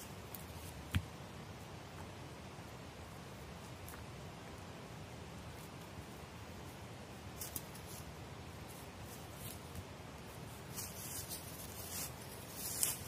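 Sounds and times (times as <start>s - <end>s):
footsteps in dry leaves: 7.4s - 13.0s.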